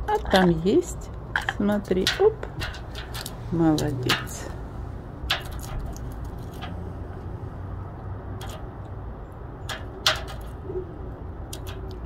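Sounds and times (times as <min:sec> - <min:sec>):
steady low rumble: 0:00.0 - 0:12.0
bird beak tapping: 0:08.4 - 0:08.7.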